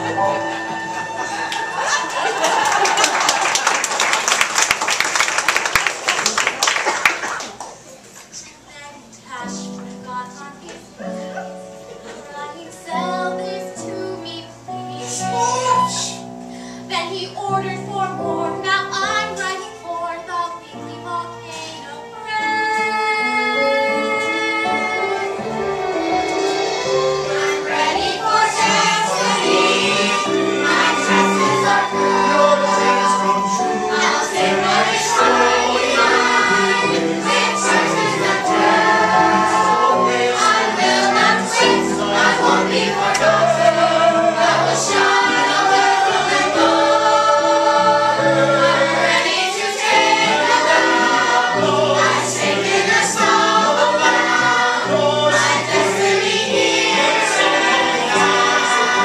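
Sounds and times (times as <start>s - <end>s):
instrumental accompaniment: 17.6s - 59.0s
group of voices singing: 22.4s - 59.0s.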